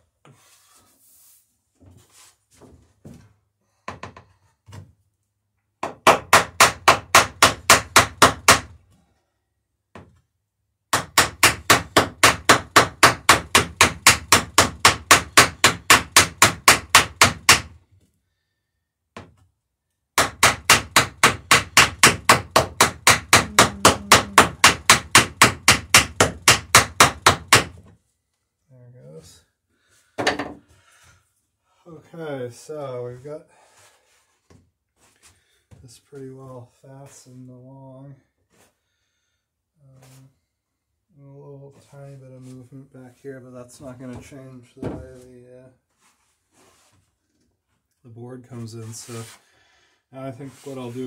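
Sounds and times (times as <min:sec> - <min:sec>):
hammer striking nails: 0:05.8 - 0:08.8, 0:10.9 - 0:17.8, 0:20.2 - 0:27.9.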